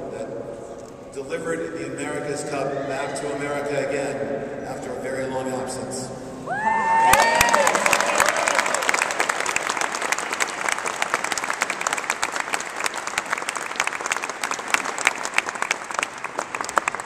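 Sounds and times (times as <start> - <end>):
audience applauding: 6.9 - 17.0.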